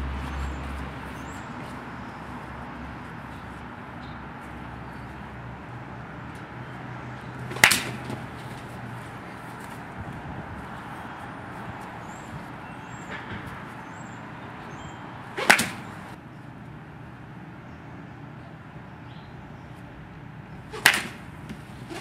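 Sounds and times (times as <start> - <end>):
baseball bat hitting ball: 7.4 - 8.8, 15.3 - 16.2, 20.7 - 22.0.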